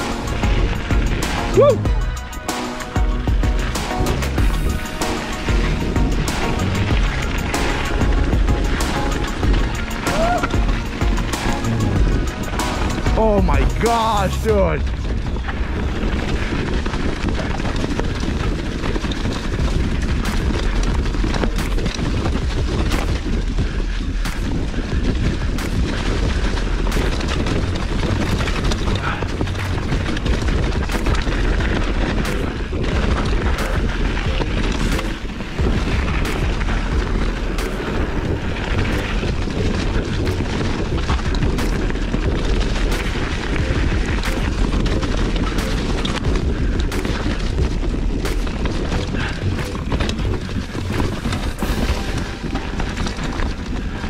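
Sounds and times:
tyres rushing over leaves and dirt: 0.0 - 54.0
bike knocks and rattles: 3.0 - 13.6, 14.8 - 54.0
wind buffeting microphone: 14.5 - 54.0.

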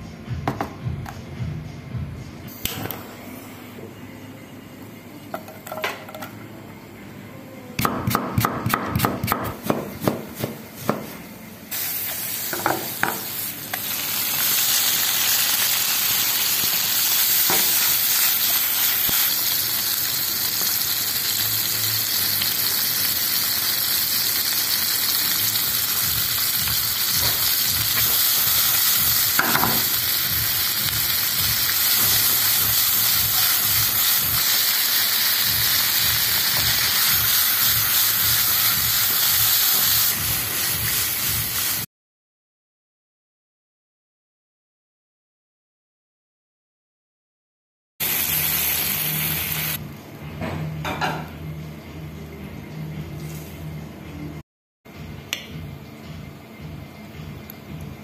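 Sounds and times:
knife chopping on wooden board: 7.8 - 11.1
food sizzling in frying pan: 11.7 - 41.9, 48.0 - 49.8.

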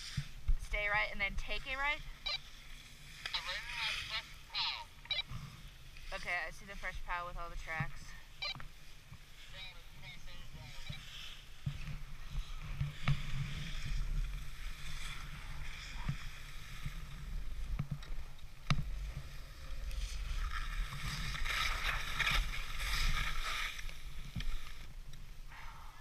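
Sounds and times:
skis swishing over snow: 0.0 - 4.8, 5.5 - 24.9
skis scraping hard snow: 10.3 - 24.8.

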